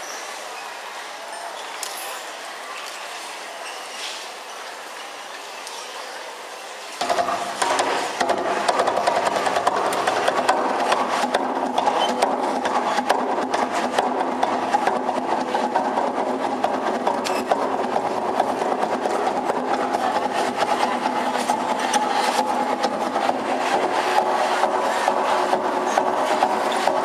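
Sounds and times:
fast hand drumming: 7.0 - 27.0.

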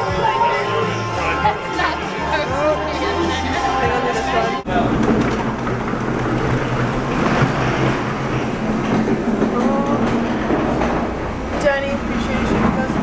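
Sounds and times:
loud rumbling din: 4.7 - 13.0.

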